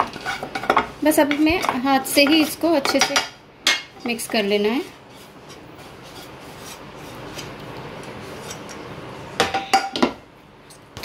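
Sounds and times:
hand rubbing food in bowl: 4.1s - 8.7s.

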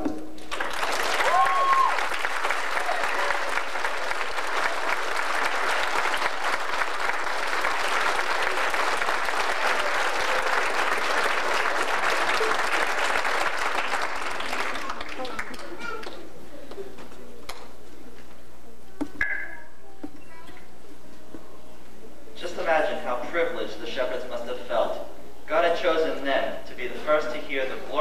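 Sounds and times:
audience applauding: 0.4s - 16.1s.

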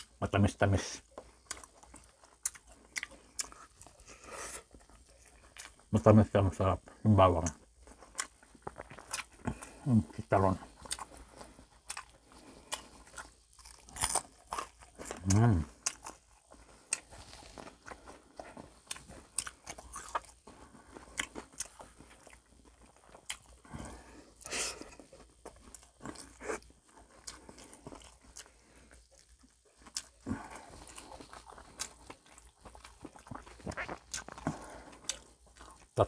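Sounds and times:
quiet chewing: 0.0s - 36.0s
crisp crunching: 10.8s - 24.0s.

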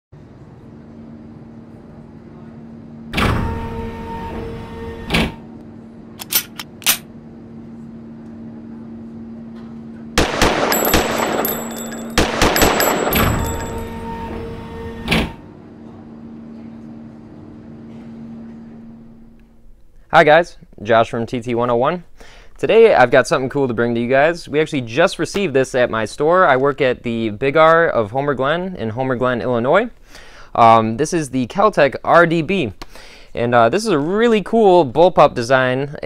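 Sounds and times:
automatic gunfire bursts: 10.2s - 13.4s
gunshots: 10.2s - 13.8s
low hum: 10.2s - 15.1s.

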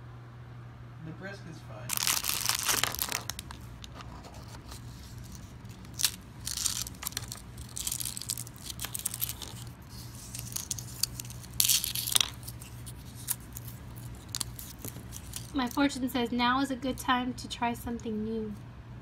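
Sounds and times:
cookie cracking and crunching: 1.9s - 15.8s
plastic wrapper crinkling and tearing: 1.9s - 15.8s.

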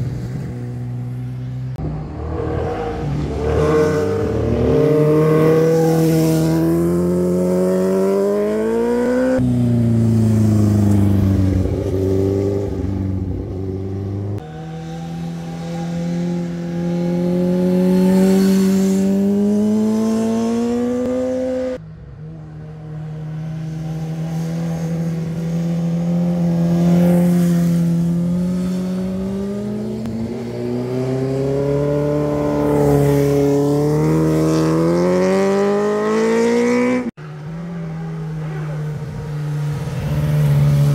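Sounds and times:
motorcycle engines accelerating: 0.0s - 40.9s.

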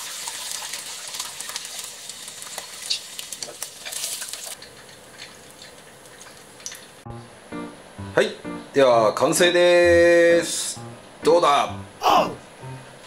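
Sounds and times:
chicken sizzling in hot oil: 0.0s - 5.0s.

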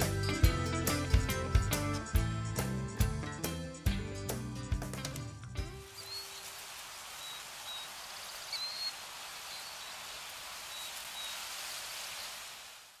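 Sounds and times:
outdoor ambience hiss: 5.6s - 13.0s
high bird chirps: 5.9s - 6.6s, 7.2s - 11.5s.

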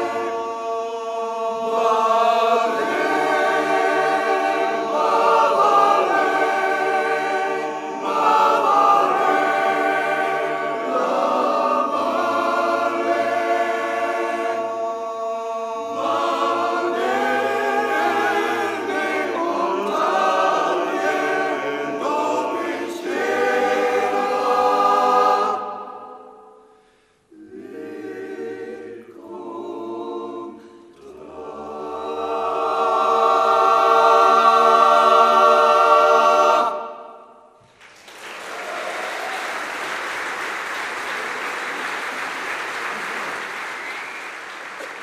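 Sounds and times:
male voice choir singing: 0.0s - 26.4s, 27.4s - 37.2s
audience applause: 37.7s - 45.0s.

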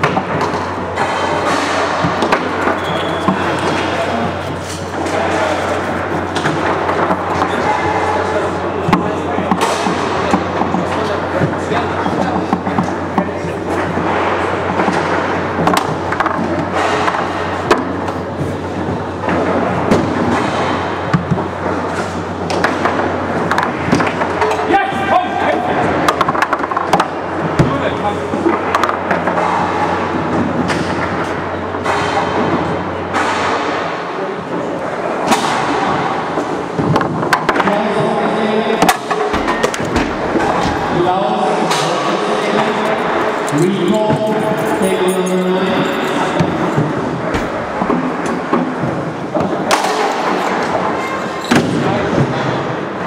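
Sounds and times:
sharp foosball hits: 0.0s - 24.7s, 25.9s - 34.0s, 35.2s - 41.0s, 46.2s - 52.6s
crowd chatter: 0.0s - 53.0s
hall hum: 28.2s - 51.0s
rods clunking: 46.4s - 49.2s.

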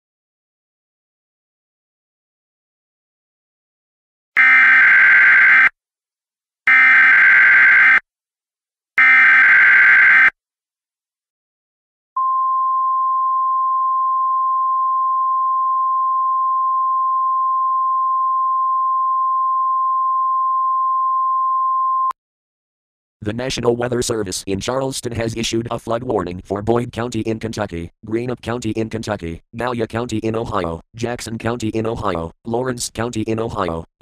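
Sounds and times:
steady single-tone signal: 4.4s - 5.7s, 6.7s - 8.0s, 9.0s - 10.3s, 12.2s - 22.2s.

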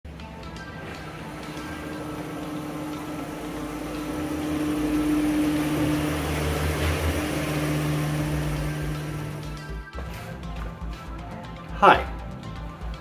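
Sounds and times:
truck engine running at low speed: 0.1s - 9.9s.

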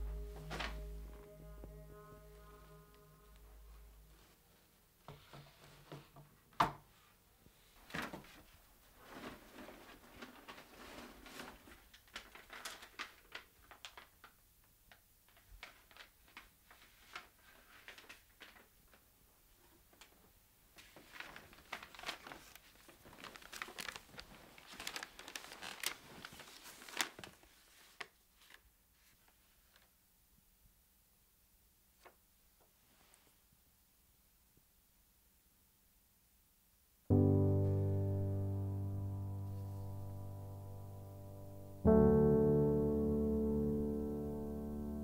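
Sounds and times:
paper and plastic rustling: 7.7s - 30.0s.

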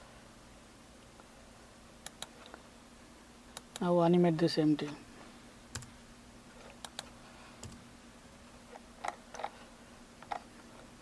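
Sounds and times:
mouse clicks: 2.0s - 2.3s, 6.8s - 7.8s.

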